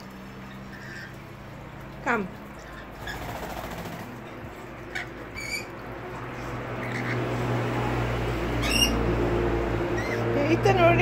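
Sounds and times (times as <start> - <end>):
bird chirping: 8.6 - 9.0.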